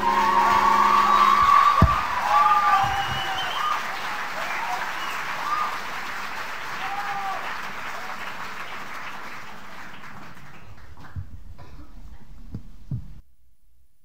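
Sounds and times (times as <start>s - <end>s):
shouts in crowd: 0.0s - 5.8s, 6.8s - 8.1s
audience applauding: 0.0s - 11.3s
soft low thump: 1.8s - 2.0s.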